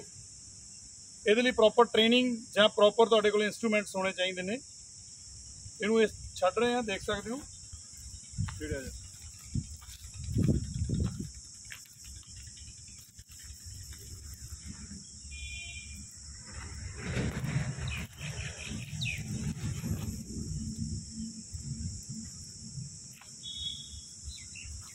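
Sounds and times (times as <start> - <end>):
insects droning: 0.0 - 24.9
low rumbling noise: 13.8 - 23.1
bird call: 23.4 - 24.8.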